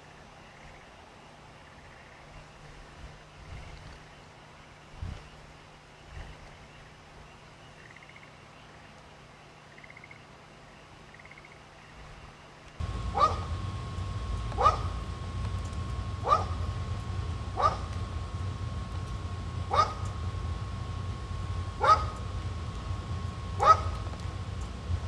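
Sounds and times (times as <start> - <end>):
thin high whine: 12.8 - 25.0
train humming at a station: 12.8 - 25.0
dog barking: 13.1 - 13.5, 14.6 - 14.9, 16.2 - 16.6, 17.6 - 17.9, 19.7 - 20.0, 21.8 - 22.2, 23.6 - 24.0.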